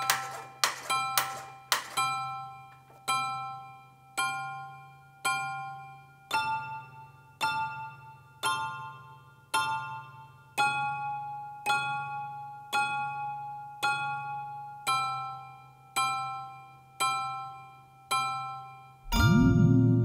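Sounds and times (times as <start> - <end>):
slow piano chords: 19.1 - 20.0
sustained low tone: 19.1 - 20.0.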